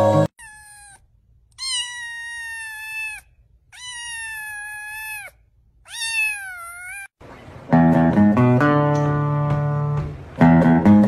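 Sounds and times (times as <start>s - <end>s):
kitten meowing: 0.4s - 7.1s.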